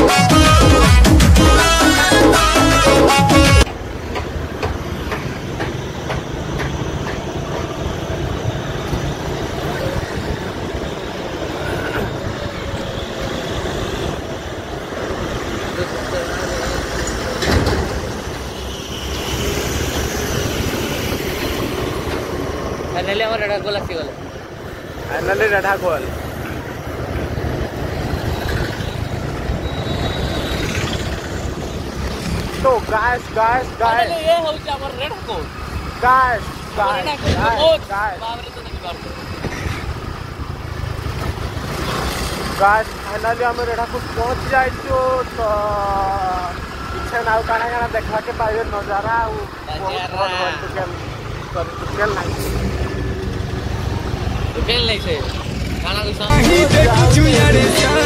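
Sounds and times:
wind and road noise: 3.4 - 58.0
vehicle engine rumble: 3.6 - 49.8
motorcycle engine: 24.8 - 32.8, 39.0 - 44.3, 51.0 - 58.0.

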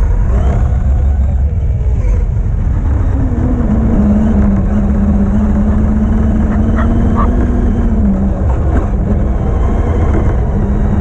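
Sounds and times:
electric motor whining: 0.0 - 11.0
rumble of wheels and wind: 0.0 - 11.0
dog yelping: 5.7 - 7.4.

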